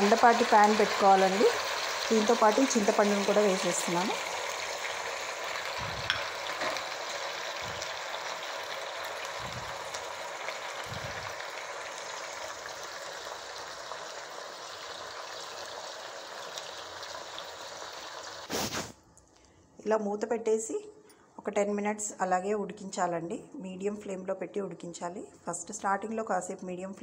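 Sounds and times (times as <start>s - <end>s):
tomatoes sizzling in hot oil: 0.0s - 18.8s.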